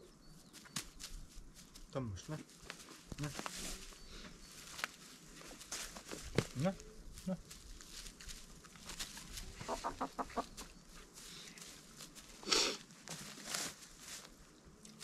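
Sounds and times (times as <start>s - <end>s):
chicken clucking: 9.5s - 10.7s.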